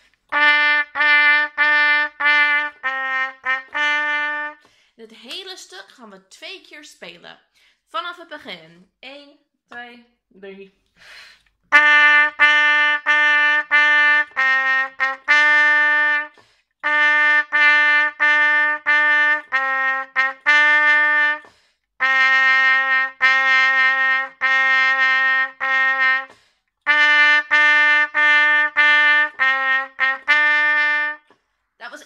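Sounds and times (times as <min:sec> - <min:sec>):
solo trumpet playing: 0:00.3 - 0:04.7, 0:11.7 - 0:31.3.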